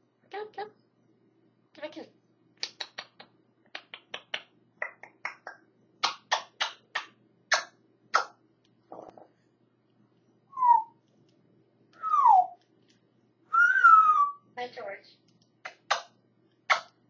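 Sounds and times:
short falling whistle: 10.6s - 10.9s, 13.5s - 14.4s.

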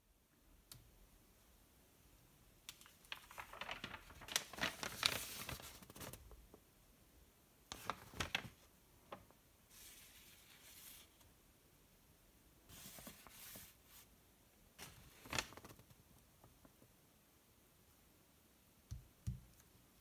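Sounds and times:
paper crackling: 2.7s - 6.4s, 7.7s - 11.1s, 14.8s - 16.6s
paper crinkling and rustling: 2.7s - 6.4s, 7.7s - 11.2s, 12.7s - 14.1s, 14.8s - 16.5s.

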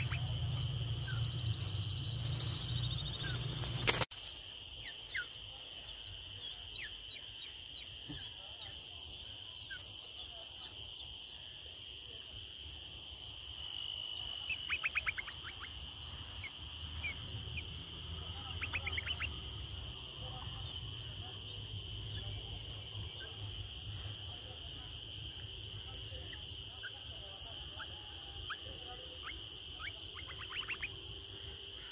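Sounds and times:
rapid repeated chirps: 0.0s - 4.1s, 13.5s - 31.9s
small birds chirping: 0.0s - 31.9s.

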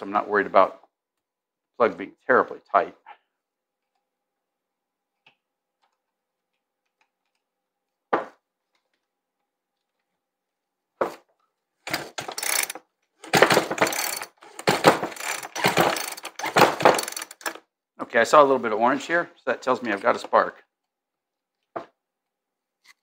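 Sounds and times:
chainsaw starter cord ratcheting: 11.8s - 17.6s.

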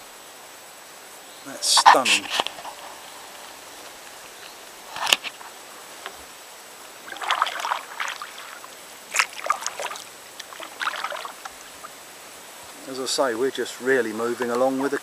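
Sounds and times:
paddle strokes splashing water: 7.0s - 12.5s.

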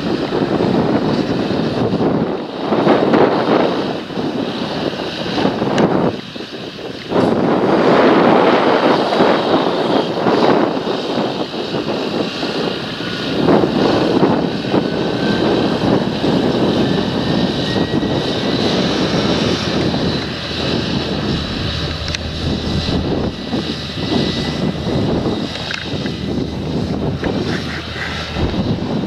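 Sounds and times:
tractor diesel engine under load: 19.1s - 29.0s.

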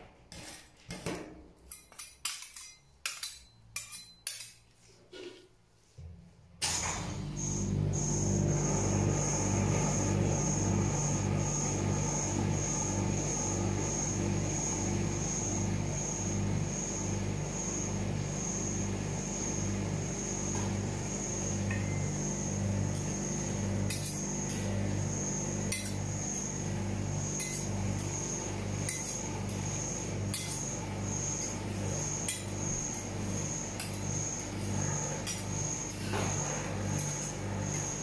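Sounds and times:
metal spatulas clinking on steel: 1.6s - 4.7s
machine electric hum: 6.0s - 38.0s.

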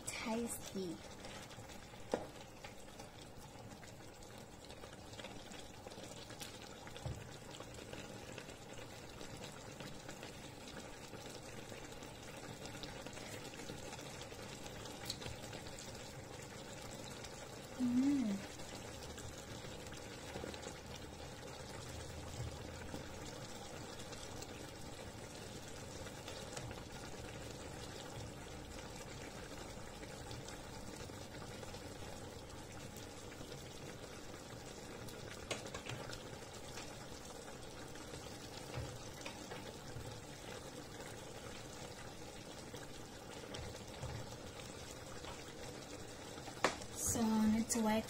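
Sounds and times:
sauce bubbling in frying pan: 0.0s - 48.0s.

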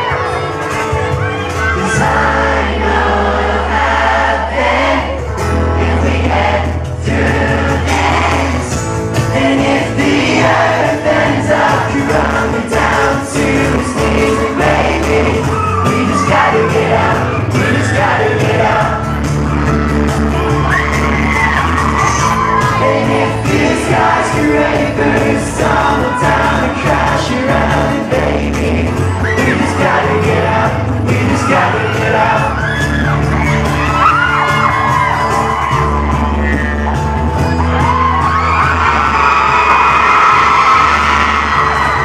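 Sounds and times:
strummed acoustic guitar: 0.0s - 38.8s
bass line: 0.0s - 42.0s
man singing lead vocal: 1.6s - 19.3s, 22.0s - 33.2s.

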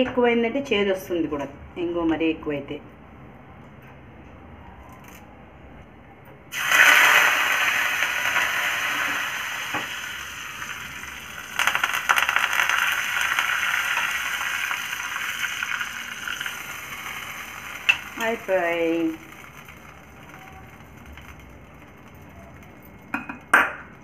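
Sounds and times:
hot oil sizzling and spluttering: 6.5s - 22.8s.

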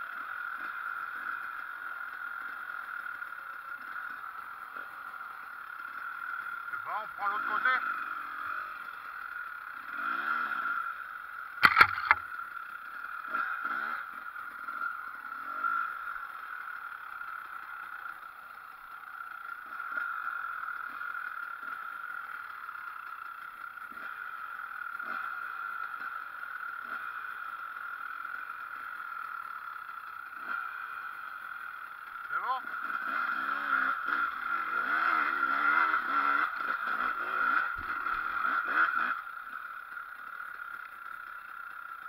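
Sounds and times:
motorcycle engine revving: 0.0s - 42.0s
sharp knocks: 11.6s - 12.2s.

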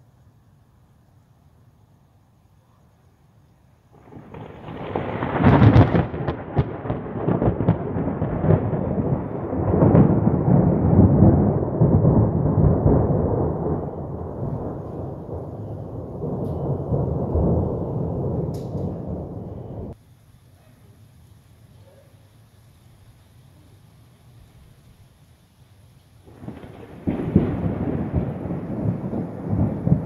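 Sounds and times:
thunder crackling and rumbling: 3.9s - 20.0s, 26.2s - 30.0s.

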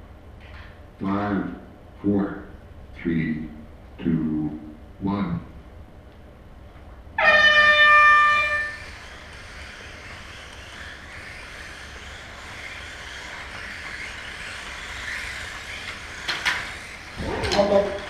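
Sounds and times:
electric rc cars whining: 7.5s - 18.0s.

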